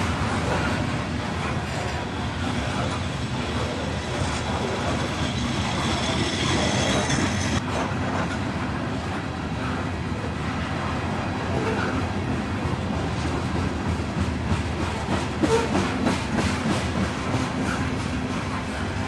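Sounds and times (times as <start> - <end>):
clacking over rail joints: 0.0 - 8.8, 11.5 - 19.0
train wheels rumbling on rails: 0.0 - 19.0
high wheel squeal: 3.7 - 7.6.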